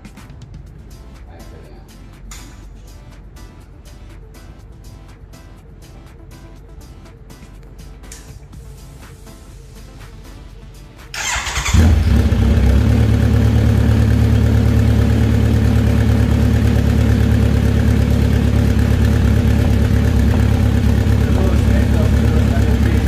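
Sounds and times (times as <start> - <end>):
motorcycle engine idling: 11.2 - 23.0.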